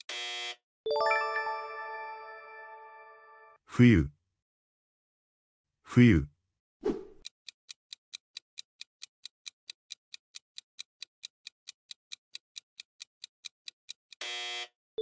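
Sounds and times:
ticking clock: 0:07.2 - 0:14.3.

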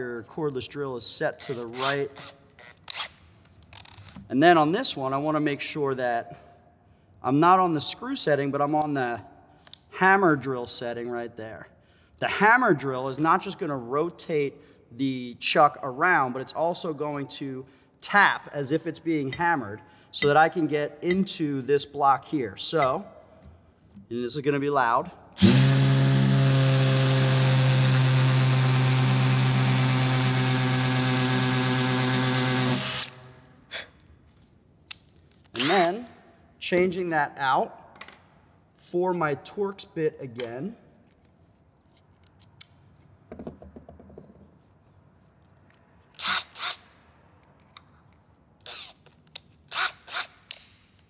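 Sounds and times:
hammer drill boring into block: 0:25.4 - 0:33.2, 0:46.2 - 0:46.8.

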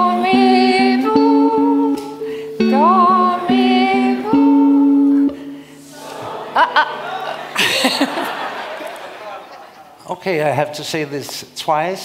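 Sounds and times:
electric guitar slow melody: 0:00.0 - 0:05.9.

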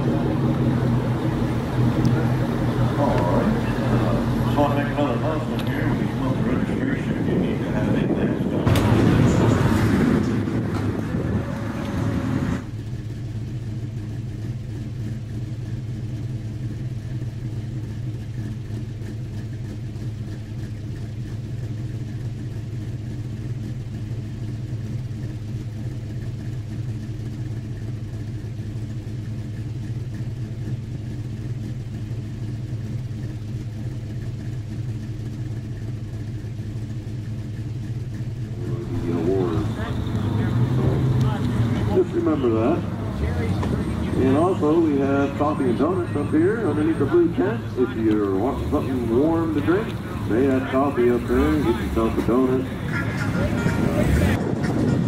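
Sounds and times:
loud busy sound: 0:00.0 - 0:12.7, 0:38.3 - 0:55.0
low engine hum: 0:00.0 - 0:55.0.

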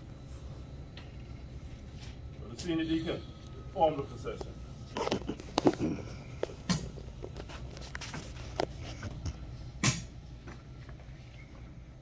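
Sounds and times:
low steady hum: 0:00.0 - 0:12.0
footsteps and shuffling: 0:04.4 - 0:09.6.

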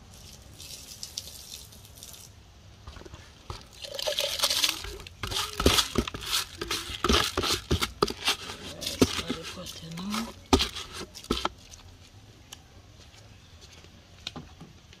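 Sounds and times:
water pouring and splashing: 0:00.0 - 0:02.4, 0:03.5 - 0:07.8.

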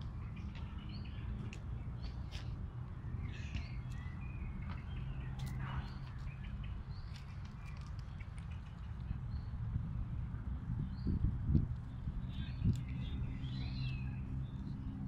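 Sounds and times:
birds chirping: 0:11.9 - 0:15.0.

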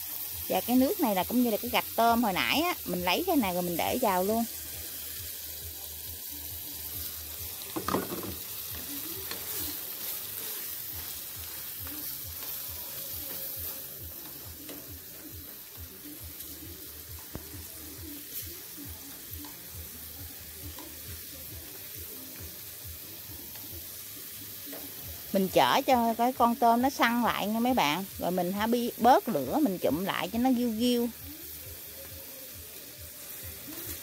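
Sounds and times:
shrimp sizzling in a pan: 0:00.0 - 0:34.0
knock on a pan: 0:07.7 - 0:08.4
chopsticks stirring shrimp: 0:08.0 - 0:16.6.

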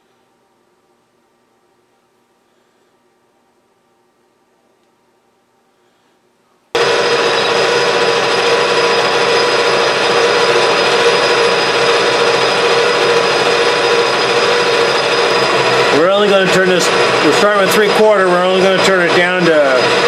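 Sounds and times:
metal lathe machining steel: 0:06.8 - 0:20.0.

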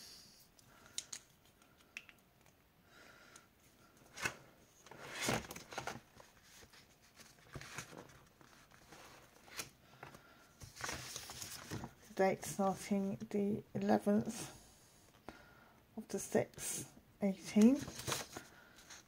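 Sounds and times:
paper pages rustling: 0:04.2 - 0:12.1, 0:17.6 - 0:19.0.

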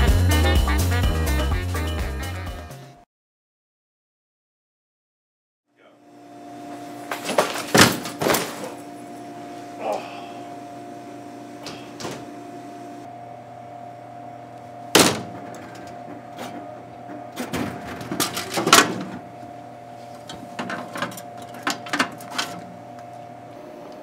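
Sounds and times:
vending machine humming: 0:05.8 - 0:24.0
loud thump: 0:15.0 - 0:15.6.

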